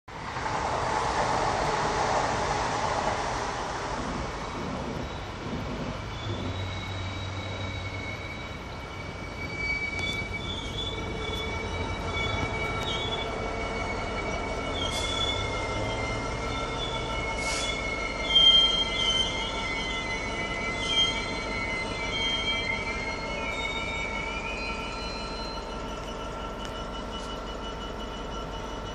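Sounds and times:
passing passenger train: 0:00.0 - 0:28.9
train wheels squealing on rails: 0:00.1 - 0:28.9.

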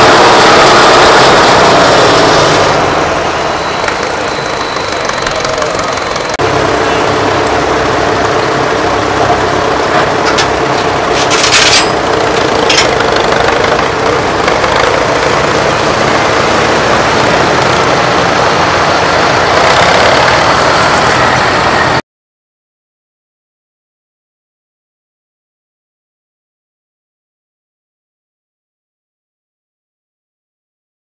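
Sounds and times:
tractor diesel engines running: 0:00.0 - 0:22.0.

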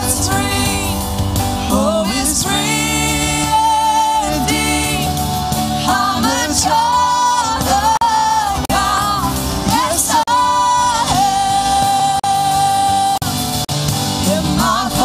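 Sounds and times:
worship band playing: 0:00.0 - 0:15.0
woman singing: 0:01.7 - 0:13.3.

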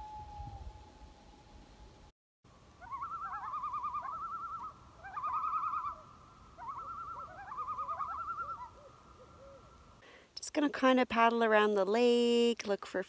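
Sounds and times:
loons calling: 0:02.7 - 0:10.0.

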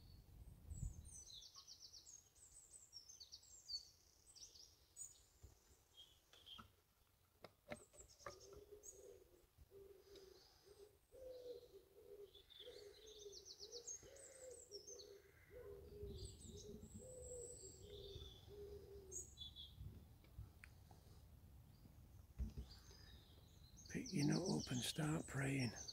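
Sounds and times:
small birds chirping and trilling: 0:00.0 - 0:07.0, 0:07.7 - 0:25.9
low cooing bird: 0:08.2 - 0:19.8.

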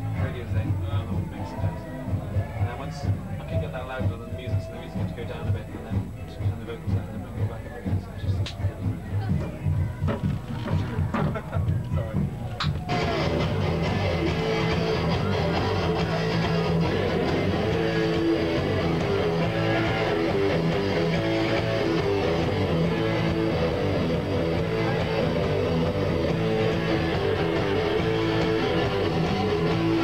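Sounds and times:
rock band playing live: 0:08.8 - 0:30.0
electric guitar: 0:12.4 - 0:30.0.

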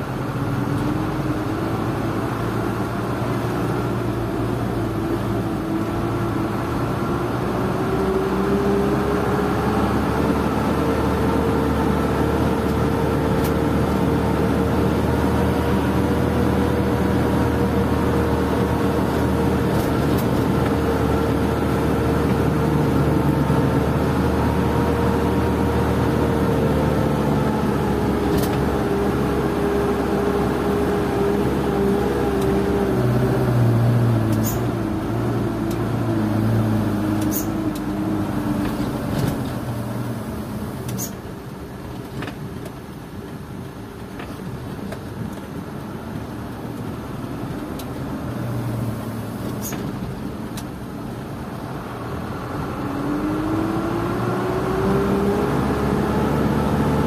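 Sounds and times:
road rumble: 0:00.0 - 0:57.0.

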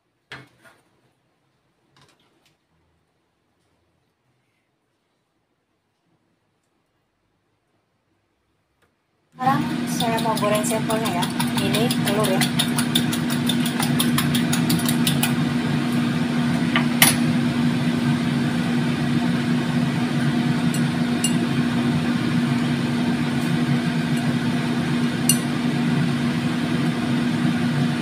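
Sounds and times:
machine hum: 0:09.4 - 0:28.0
utensil stirring egg in bowl: 0:09.5 - 0:15.6, 0:20.2 - 0:21.6.

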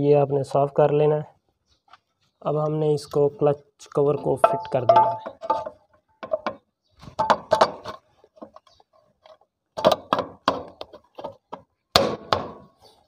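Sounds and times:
metal engine cover knocking into place: 0:04.4 - 0:06.6.

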